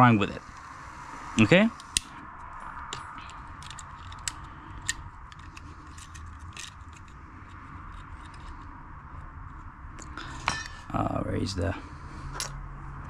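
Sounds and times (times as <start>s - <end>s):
faint steady hum: 0.0s - 13.0s
small metallic clicks: 2.8s - 8.7s.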